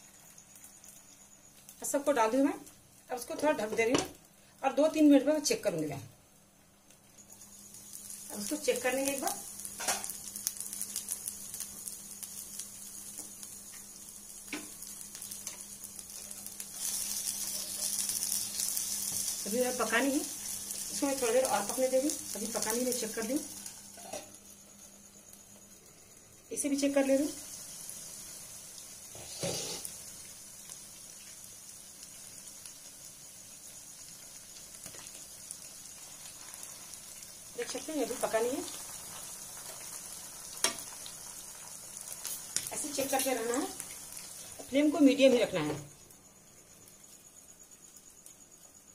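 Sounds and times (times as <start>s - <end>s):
food sizzling in oil: 0.0s - 48.9s.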